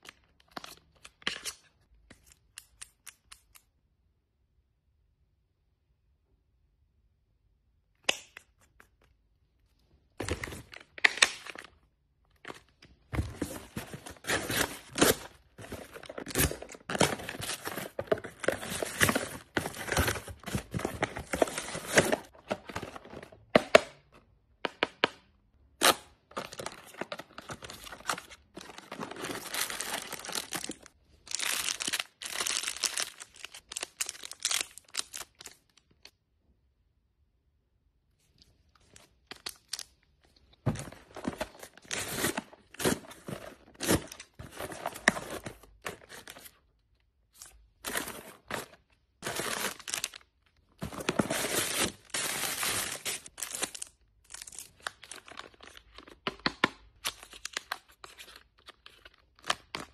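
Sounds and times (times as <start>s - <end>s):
cardboard and plastic crinkling: 10.2s - 23.6s, 26.2s - 35.6s, 40.4s - 46.7s, 47.4s - 56.4s
plastic wrapper crinkling: 26.3s - 36.1s, 47.4s - 56.3s.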